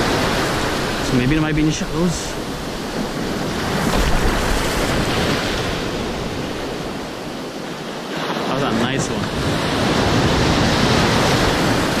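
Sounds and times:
surf breaking in shallows: 0:00.0 - 0:12.0
wind buffeting microphone: 0:00.0 - 0:12.0.

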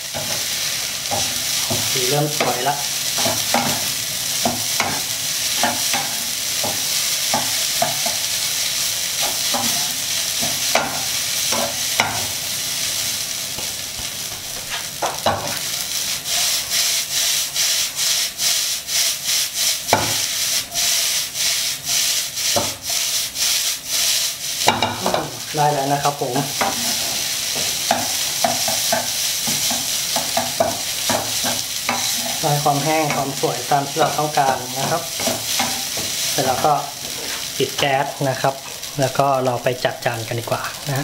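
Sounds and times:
rice sizzling in a pan: 0:00.0 - 0:41.0
wooden spatula scraping a pan: 0:16.3 - 0:25.4, 0:26.4 - 0:37.6.

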